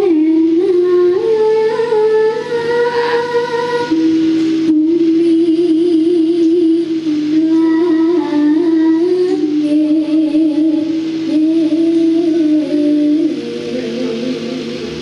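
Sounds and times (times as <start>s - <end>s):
gamelan ensemble playing: 3.9s - 5.8s, 12.2s - 15.0s.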